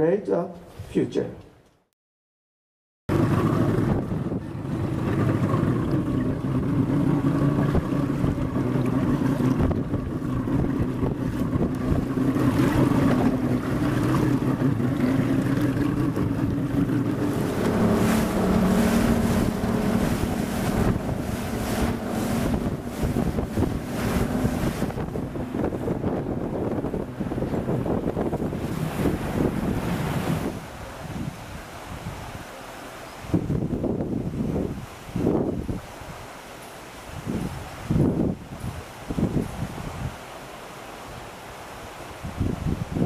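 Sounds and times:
boat engine drone: 0:03.1 - 0:32.0
wind buffeting microphone: 0:03.1 - 0:32.5, 0:33.2 - 0:36.3, 0:37.1 - 0:40.2, 0:42.2 - 0:43.0
wake rushing: 0:03.1 - 0:43.0.

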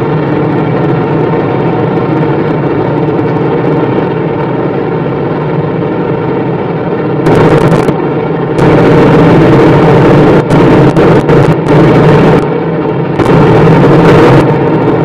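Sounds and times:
car engine drone: 0:00.0 - 0:15.0
loud harsh rush: 0:00.0 - 0:15.0
wind and road noise: 0:00.0 - 0:15.0.

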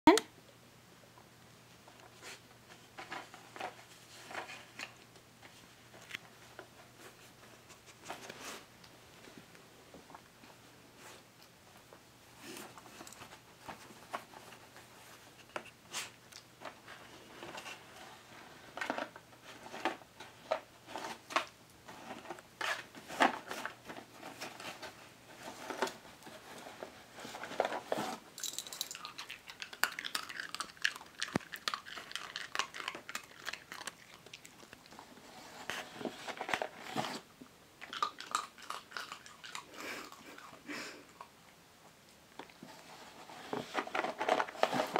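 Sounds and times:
rummaging in cardboard box: 0:18.7 - 0:28.3, 0:35.1 - 0:37.3, 0:42.6 - 0:44.9
dog crunching biscuits: 0:28.4 - 0:35.0, 0:37.8 - 0:41.3.

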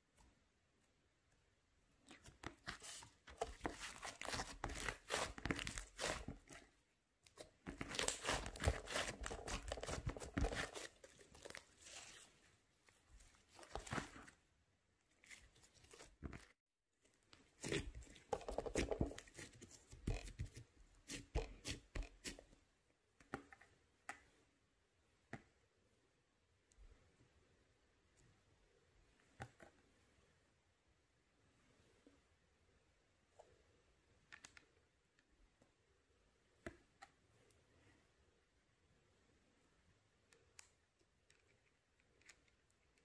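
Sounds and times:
slime crackling and tearing: 0:03.8 - 0:06.3, 0:07.8 - 0:10.8.

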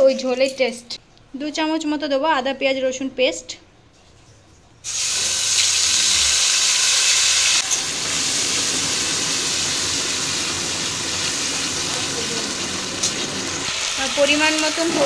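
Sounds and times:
paste sizzling in hot oil: 0:04.8 - 0:15.0.

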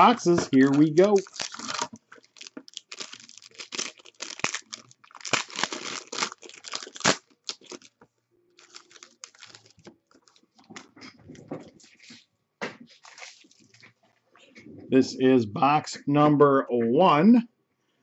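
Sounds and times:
plastic wrap crinkling and tearing: 0:00.0 - 0:08.0, 0:08.6 - 0:10.9, 0:12.9 - 0:13.9.

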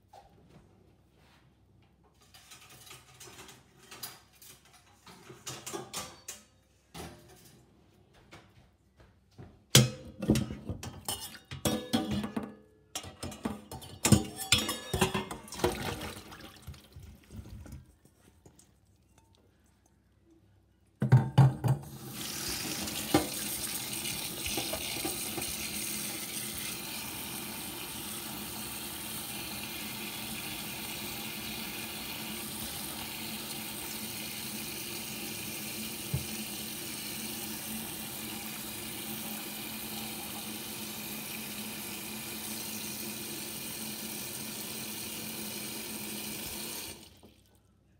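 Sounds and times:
water splashing onto fruit in colander: 0:15.4 - 0:17.9.

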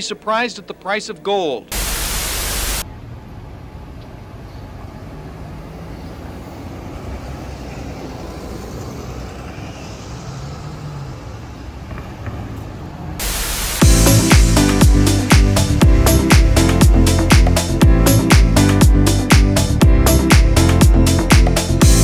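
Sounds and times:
static hiss: 0:01.7 - 0:02.8, 0:13.2 - 0:14.5
street traffic rumble: 0:02.7 - 0:22.0.

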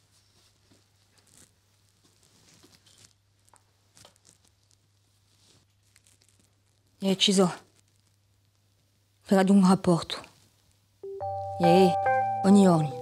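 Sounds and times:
faint rustling: 0:00.0 - 0:08.9
low steady hum: 0:10.7 - 0:13.0.

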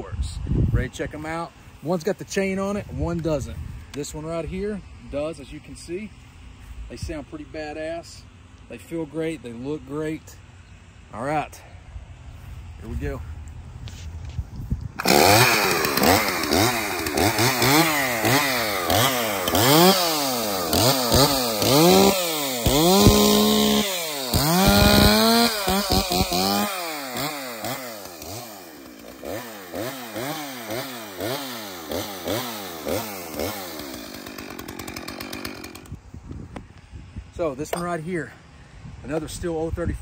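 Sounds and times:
chainsaw engine revving: 0:15.0 - 0:36.0.

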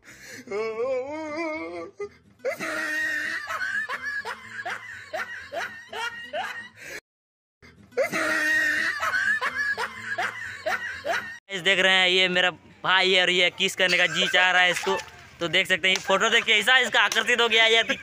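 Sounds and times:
snickering laughter: 0:02.4 - 0:06.8, 0:08.0 - 0:11.4, 0:13.8 - 0:15.0.

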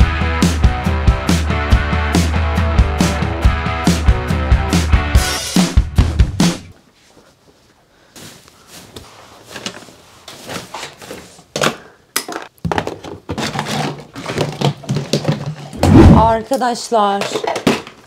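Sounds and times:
objects being handled and set down: 0:08.2 - 0:18.0
plastic toys clattering into boxes: 0:10.6 - 0:18.0.

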